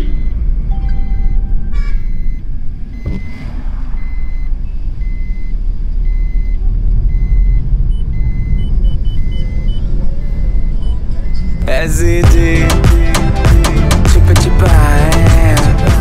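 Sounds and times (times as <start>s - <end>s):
short high electronic beep: 0.0s - 7.5s
vehicle rumble: 0.0s - 16.0s.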